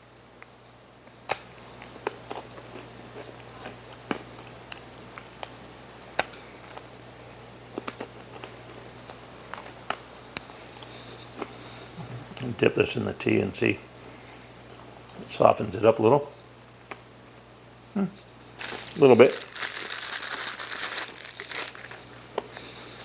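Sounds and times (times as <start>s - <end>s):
low steady hum: 0.0s - 23.0s
cracker crunching: 7.7s - 10.0s, 18.5s - 23.0s.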